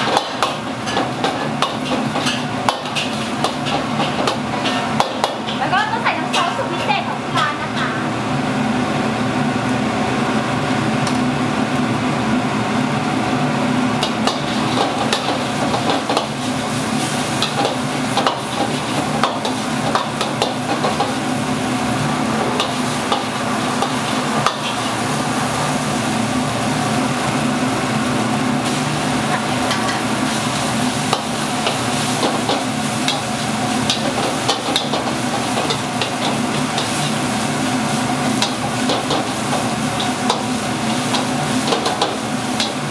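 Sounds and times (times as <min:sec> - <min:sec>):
spatula scraping a wok: 0:00.0 - 0:06.9, 0:14.0 - 0:21.2, 0:22.3 - 0:25.2, 0:28.6 - 0:42.9
food sizzling: 0:00.0 - 0:42.9.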